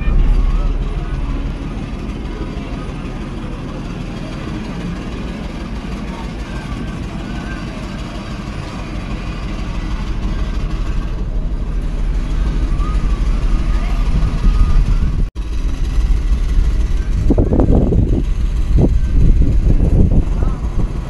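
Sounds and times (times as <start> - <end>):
wind buffeting microphone: 6.9 - 21.0.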